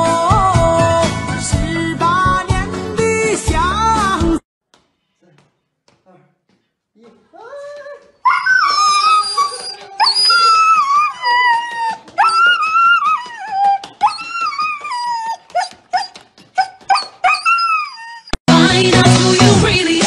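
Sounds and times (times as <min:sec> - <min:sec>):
dog howling: 0:08.2 - 0:18.4
dog whining: 0:08.2 - 0:18.4
dog yipping: 0:08.2 - 0:18.4.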